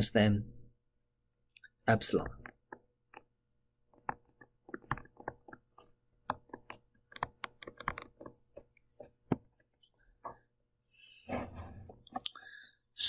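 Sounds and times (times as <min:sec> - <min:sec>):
stylus tapping on tablet screen: 0:02.1 - 0:10.4.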